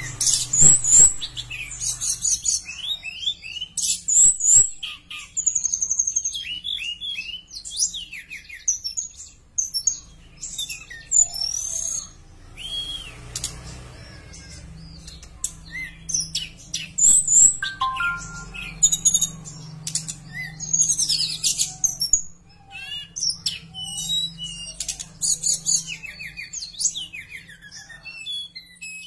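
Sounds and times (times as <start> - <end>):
bird singing whistled chirps: 17.3 - 19.0.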